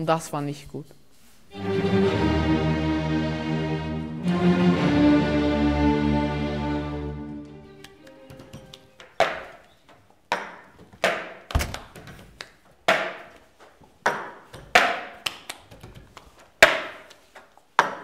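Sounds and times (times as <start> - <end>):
hand claps: 7.7 - 9.6, 14.6 - 17.2.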